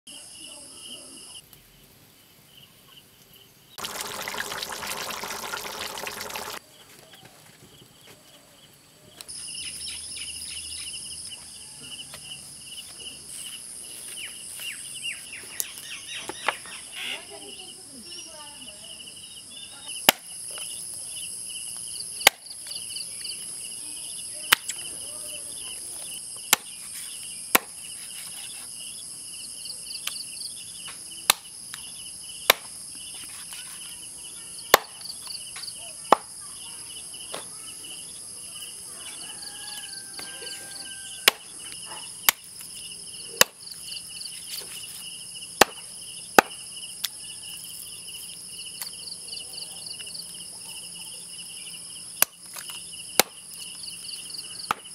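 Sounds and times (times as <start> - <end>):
high-pitched insect chorus: 16.9 - 54.9.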